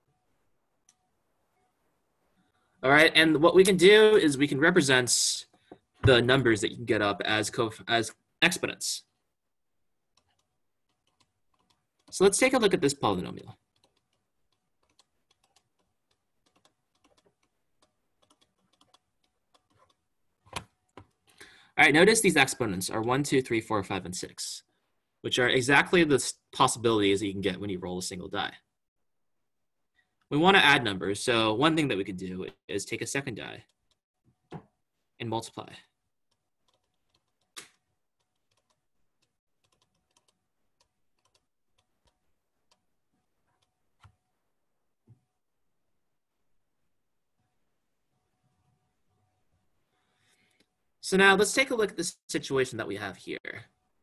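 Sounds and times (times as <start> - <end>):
clicking and tapping at a desk: 13.7 - 21.3, 33.6 - 34.8.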